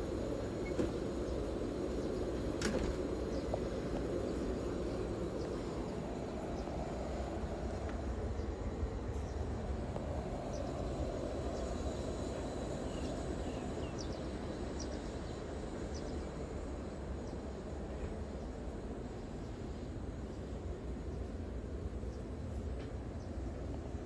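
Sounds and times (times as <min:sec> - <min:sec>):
low outdoor rumble: 0:00.0 - 0:24.0
small birds chirping: 0:00.6 - 0:07.4, 0:09.2 - 0:16.4.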